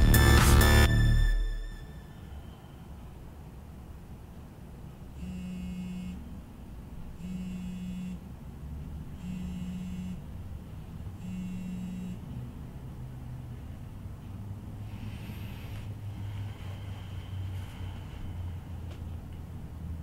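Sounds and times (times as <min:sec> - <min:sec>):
mobile phone buzzing: 0:05.2 - 0:06.2, 0:07.2 - 0:08.2, 0:09.2 - 0:10.3, 0:11.2 - 0:12.4.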